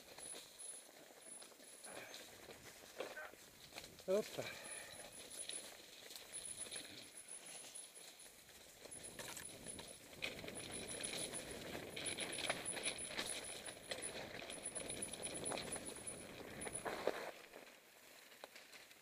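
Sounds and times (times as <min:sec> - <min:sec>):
bike clicking and knocking over rocks: 0:08.4 - 0:17.3.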